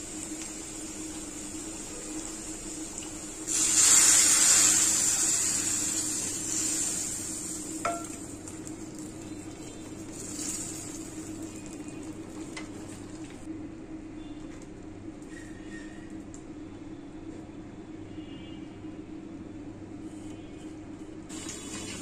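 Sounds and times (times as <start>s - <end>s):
hot oil hissing in a pot: 0.0s - 11.8s, 21.3s - 22.0s.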